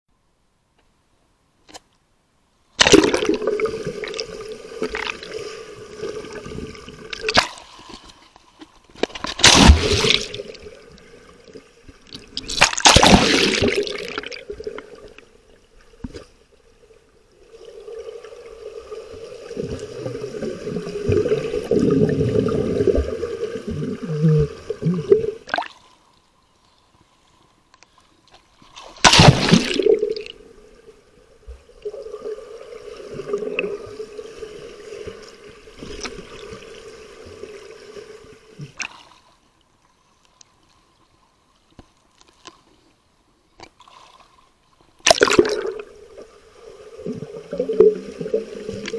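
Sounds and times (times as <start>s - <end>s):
pool water sloshing and splashing: 2.8s - 26.2s, 28.4s - 39.5s.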